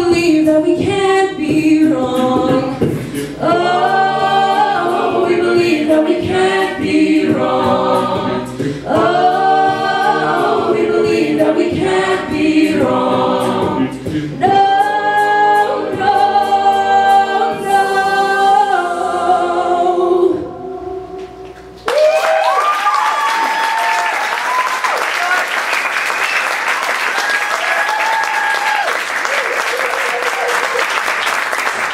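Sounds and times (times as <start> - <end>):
beatboxed vocal percussion: 0.0 - 3.8, 5.6 - 9.9, 11.1 - 16.2
a cappella group singing: 0.0 - 21.8
audience applause and cheering: 21.8 - 31.9.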